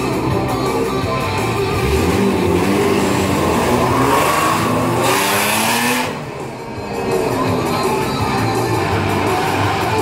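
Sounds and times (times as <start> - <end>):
car engine revving: 0.7 - 10.0.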